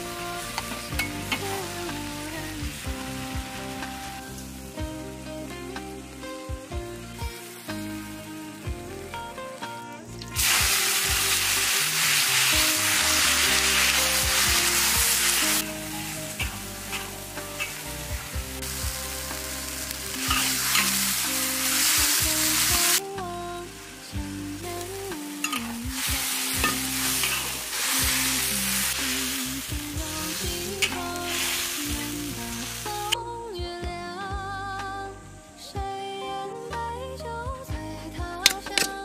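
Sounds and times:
vegetables sizzling in a wok: 0.0 - 33.3
metal spatula scraping wok: 10.4 - 22.0, 25.4 - 29.7.

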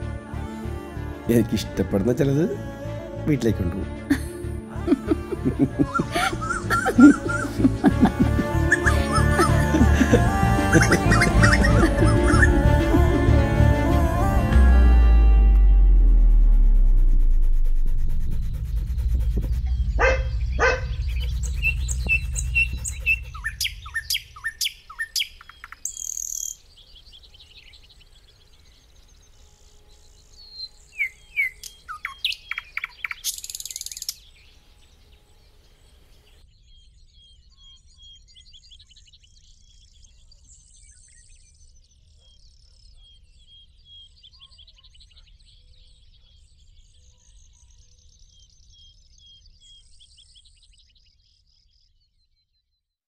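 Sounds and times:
small birds chirping: 5.7 - 12.6, 18.5 - 52.7
low rumble: 12.6 - 23.9.

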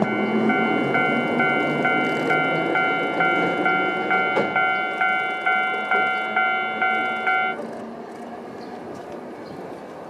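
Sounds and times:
level crossing bell clanging: 0.0 - 7.6
tram running on rails: 0.0 - 10.0.

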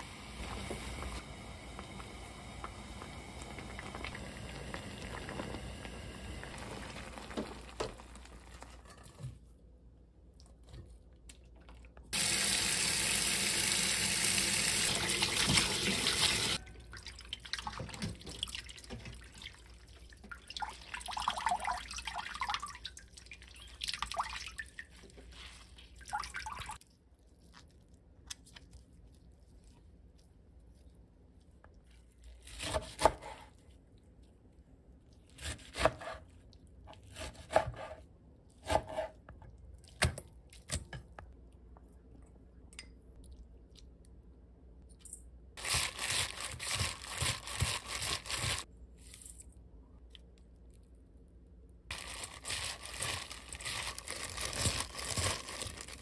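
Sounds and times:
pan of water simmering: 0.0 - 9.2
kitchen tap running hard: 12.2 - 16.6
water splashes and drips: 14.9 - 26.8.

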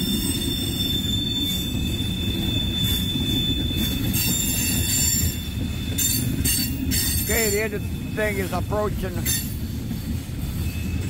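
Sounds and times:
high wheel squeal: 0.0 - 11.0
train wheels rumbling on rails: 0.0 - 11.0.

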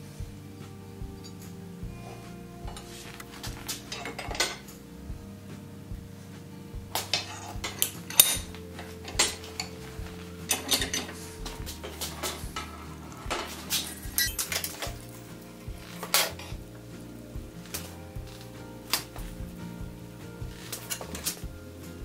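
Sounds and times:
soft background music: 0.0 - 22.0
metallic clanks and clinks: 3.8 - 4.8, 10.5 - 15.1.

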